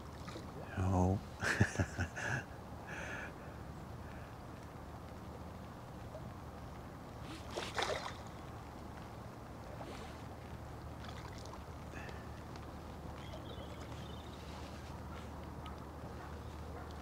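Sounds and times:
water sloshing and splashing: 0:00.0 - 0:00.7, 0:05.2 - 0:17.0.

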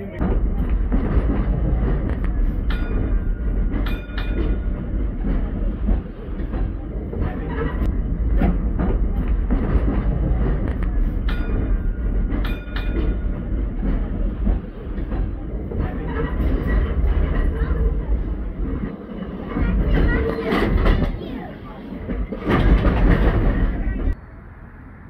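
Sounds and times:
wheels clicking over rail joints: 0:00.0 - 0:24.2
tram wheels rumbling: 0:00.0 - 0:25.0
sharp metallic clanks: 0:00.2 - 0:05.4, 0:06.4 - 0:17.8.

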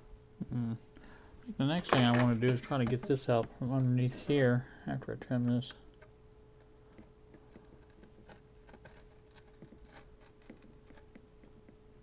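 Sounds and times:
faint steady hum: 0:00.0 - 0:12.0
knife scraping paper cone: 0:07.6 - 0:11.2.

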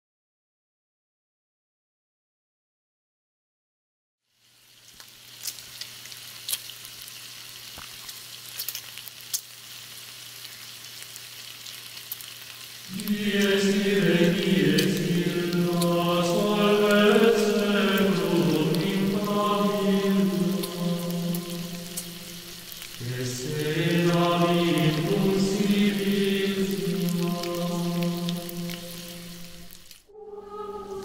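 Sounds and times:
crackling hiss with pops: 0:04.3 - 0:30.1
faint steady hum: 0:12.9 - 0:31.0
low chanting voices: 0:12.9 - 0:31.0.

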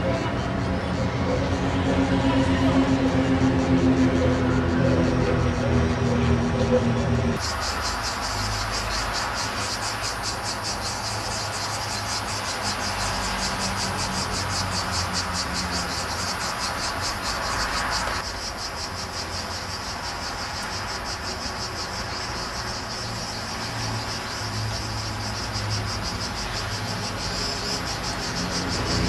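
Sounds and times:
cicadas singing: 0:00.0 - 0:29.0
steady hiss: 0:07.4 - 0:28.4.

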